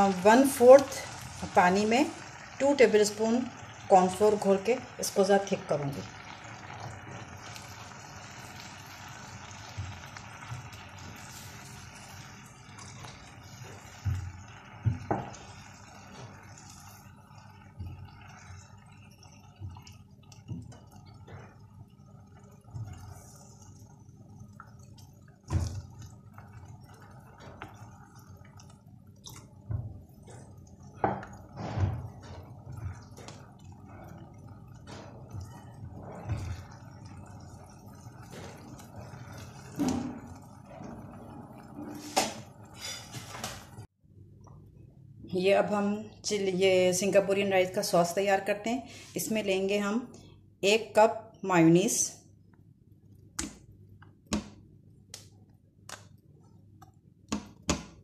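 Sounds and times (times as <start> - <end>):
sauce simmering with a hiss: 0.0 - 19.8, 30.0 - 43.7.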